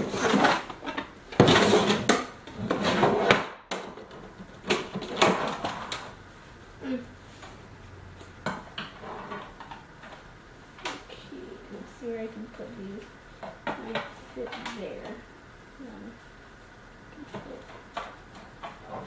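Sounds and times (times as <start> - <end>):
rustling: 0.0 - 3.3.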